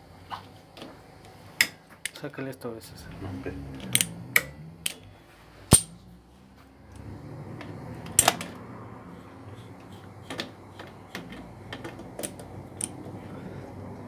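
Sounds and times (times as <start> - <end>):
metallic clicks and taps of tools: 10.3 - 13.0.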